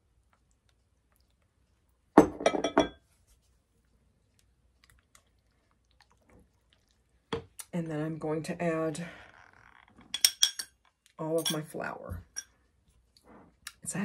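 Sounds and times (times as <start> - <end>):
glass clinking: 2.2 - 3.0, 10.1 - 10.7.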